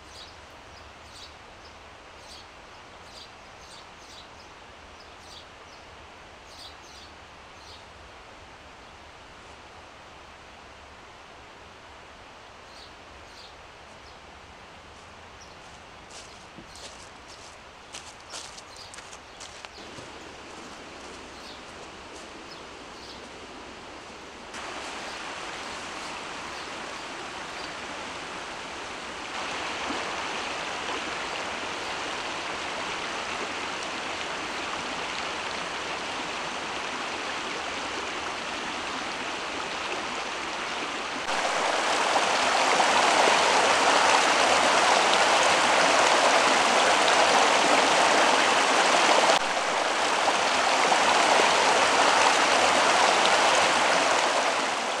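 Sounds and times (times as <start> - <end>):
stream running over stones: 12.6 - 55.0.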